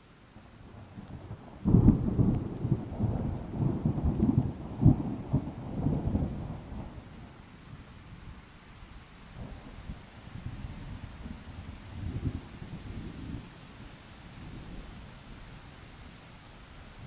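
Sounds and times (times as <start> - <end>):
thunder rumbling: 0.8 - 7.1.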